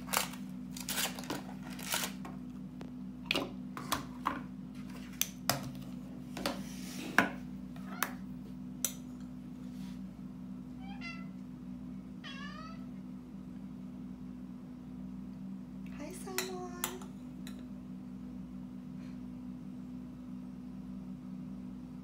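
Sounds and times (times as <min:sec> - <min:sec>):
cat meowing: 0:10.8 - 0:11.4, 0:12.2 - 0:12.9.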